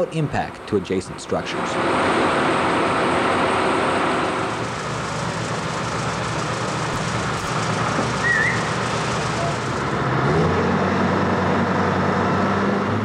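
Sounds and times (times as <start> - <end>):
construction machinery running: 0.0 - 13.0.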